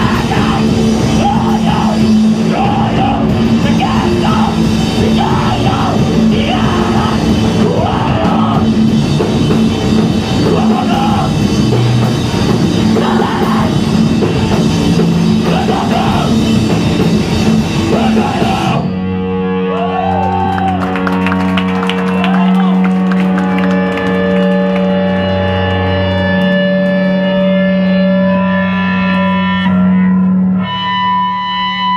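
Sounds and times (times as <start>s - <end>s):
shouted vocals: 0.0s - 8.8s, 10.4s - 11.5s, 12.8s - 13.8s, 15.4s - 16.5s, 17.8s - 18.9s
distorted electric guitars: 0.0s - 31.9s
drums: 0.0s - 31.9s
guitar amplifier tones ringing: 23.8s - 31.9s.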